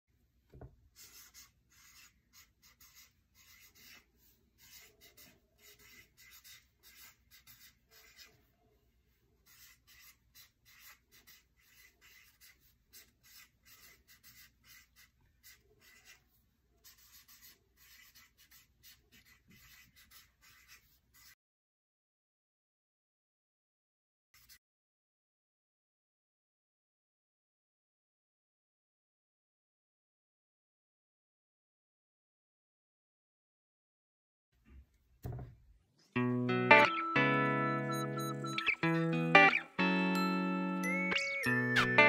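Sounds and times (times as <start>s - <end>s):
marker scratching on paper: 1.0s - 21.4s, 24.4s - 24.6s.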